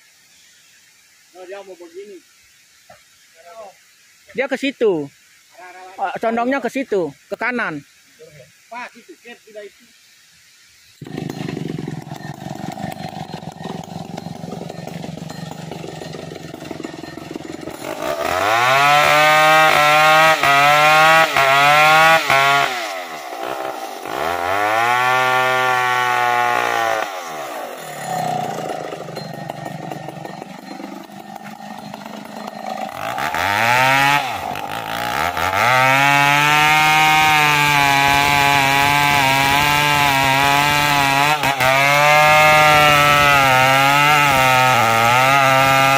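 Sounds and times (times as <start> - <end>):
chainsaw cutting into tree trunk: 11.0 - 45.9
chainsaw idling and revving: 11.0 - 45.9.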